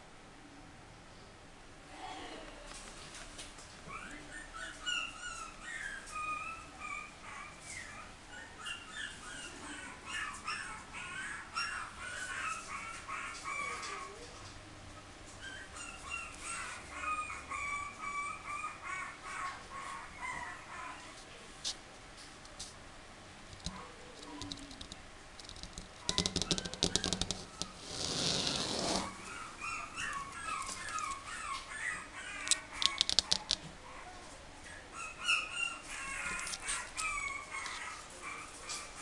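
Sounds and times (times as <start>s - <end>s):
puppies whining and yipping: 3.8s - 14.4s, 15.0s - 21.2s, 26.1s - 39.0s.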